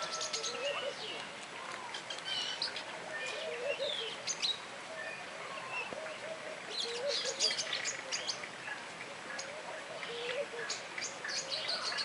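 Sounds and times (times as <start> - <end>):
birds chirping and whistling: 0.0 - 1.2, 1.9 - 8.4
background hiss: 0.0 - 12.0.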